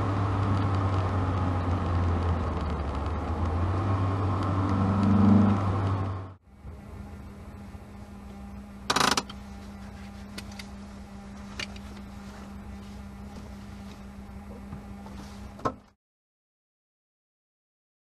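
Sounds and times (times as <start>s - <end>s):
car engine idling: 5.8s - 15.9s.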